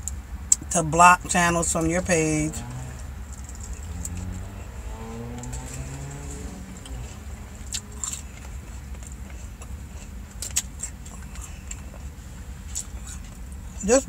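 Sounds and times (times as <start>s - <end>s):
low steady rumble: 0.0s - 14.0s
chewing: 5.3s - 13.6s.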